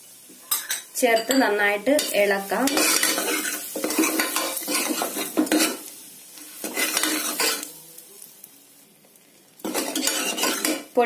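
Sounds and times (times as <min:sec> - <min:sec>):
oil sizzling: 0:00.0 - 0:11.0
spoon scraping metal pot: 0:02.7 - 0:05.8, 0:06.6 - 0:07.7, 0:09.7 - 0:10.9.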